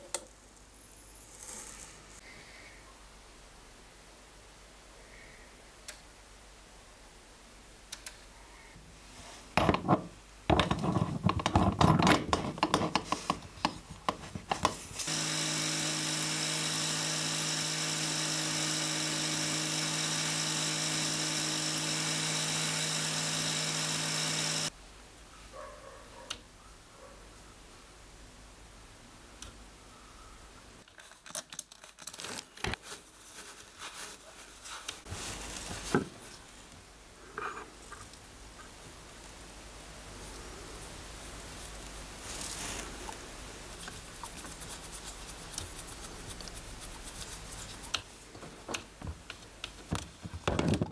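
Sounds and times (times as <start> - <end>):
angle grinder whining: 15.0 - 24.7.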